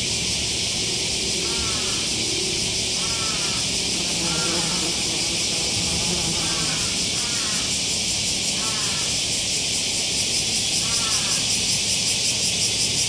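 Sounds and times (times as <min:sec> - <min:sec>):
steady high hiss: 0:00.0 - 0:13.0
wasp buzzing: 0:01.4 - 0:09.2.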